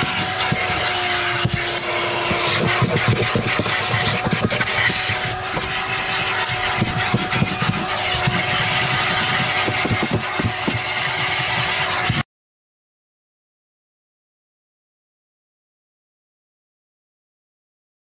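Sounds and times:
brush bristles rasping on carpet: 0.0s - 12.2s
vacuum cleaner running: 0.0s - 12.2s.

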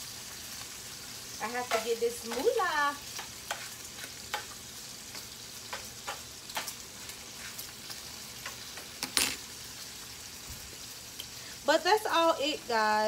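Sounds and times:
grease crackling and popping: 0.0s - 9.5s
bacon sizzling in grease: 0.0s - 13.0s.

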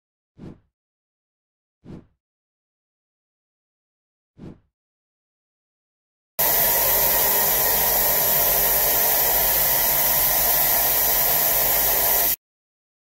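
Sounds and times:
machining centre hissing and humming: 6.4s - 12.4s.

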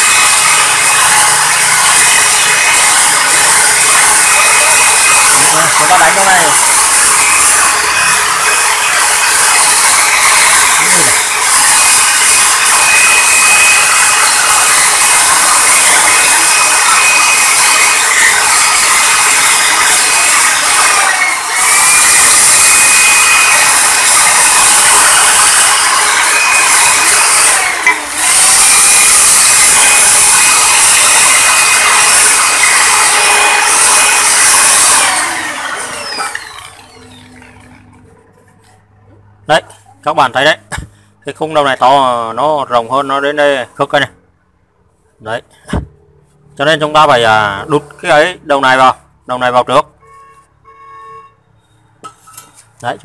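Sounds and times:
drill grinding metal: 0.0s - 38.2s.

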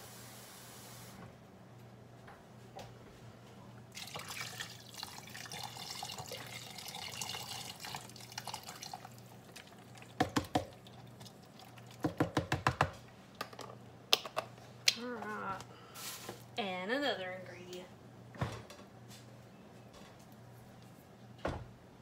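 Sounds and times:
water pouring into pot: 3.9s - 12.2s.

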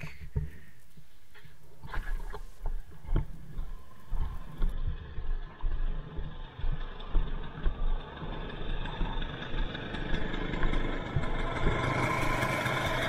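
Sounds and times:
steady low rumble: 0.0s - 13.0s
footsteps crunching in snow: 0.8s - 5.8s.

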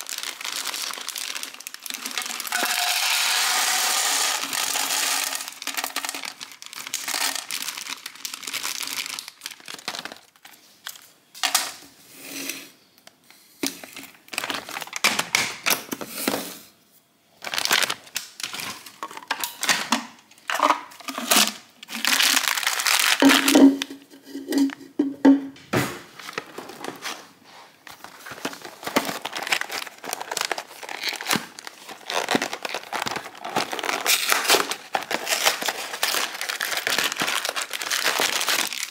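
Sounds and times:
plastic packaging crinkling: 0.0s - 11.9s, 13.0s - 16.4s, 17.3s - 25.3s, 26.1s - 38.9s
packets knocking on countertop: 23.2s - 26.7s.

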